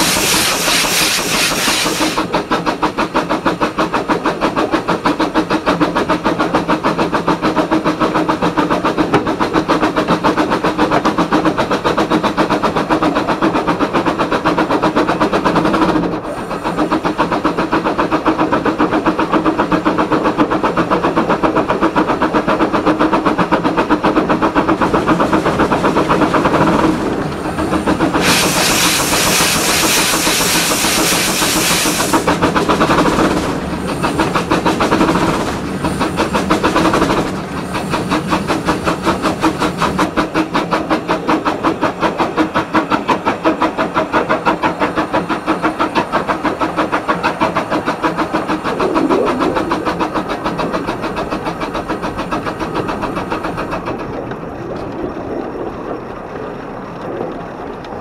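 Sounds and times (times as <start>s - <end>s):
loud hiss of steam: 0.0s - 2.4s, 27.5s - 32.8s
steam locomotive exhaust beat: 0.0s - 54.4s
train rattling on rails: 0.0s - 58.0s.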